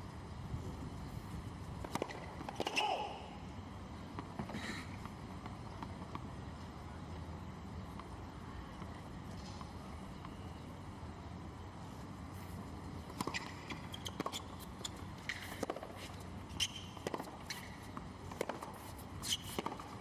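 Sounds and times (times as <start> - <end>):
low stadium hum: 0.0 - 20.0
racket hitting tennis ball: 1.8 - 3.2
sneaker squeaks: 13.1 - 17.8, 19.2 - 19.9.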